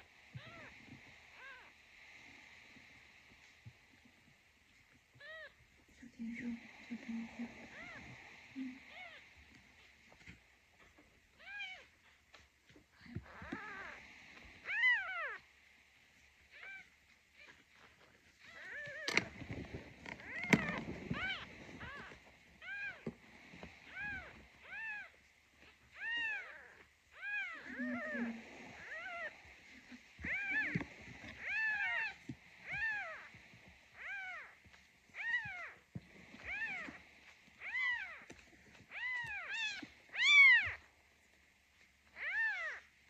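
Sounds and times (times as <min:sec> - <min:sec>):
kitten mewing: 0:20.2 - 0:23.1, 0:26.0 - 0:33.3.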